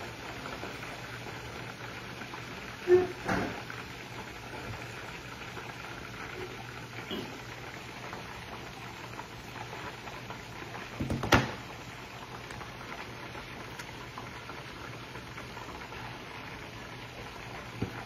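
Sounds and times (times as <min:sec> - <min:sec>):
chicken deep-frying in oil: 0:00.0 - 0:18.0.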